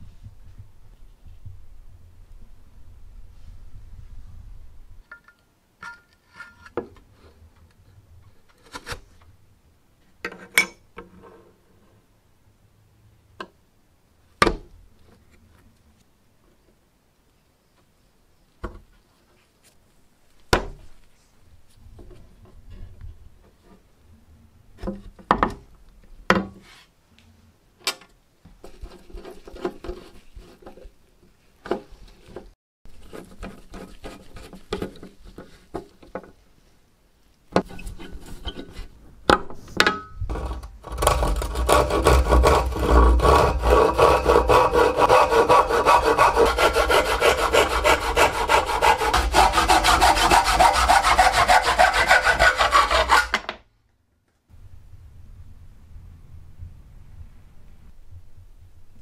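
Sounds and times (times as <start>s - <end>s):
hand saw cutting wood: 40.3s - 53.5s.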